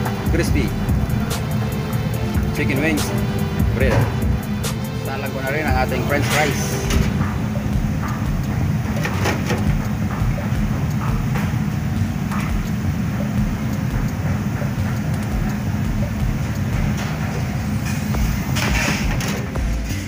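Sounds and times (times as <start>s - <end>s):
fryer low rumble: 0.0s - 20.0s
oil bubbling and crackling: 7.0s - 19.6s.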